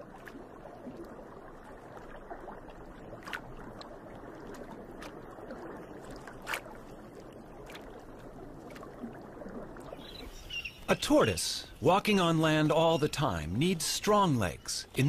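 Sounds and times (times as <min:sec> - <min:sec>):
water lapping and sloshing: 0:00.0 - 0:15.0
sharp splashes: 0:02.0 - 0:08.0.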